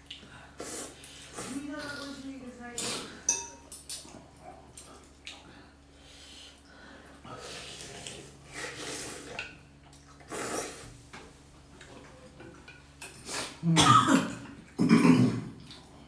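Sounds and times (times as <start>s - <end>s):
utensils clinking on ceramic bowls: 2.8s - 4.1s
noodle soup slurping: 7.4s - 9.5s, 10.2s - 11.0s.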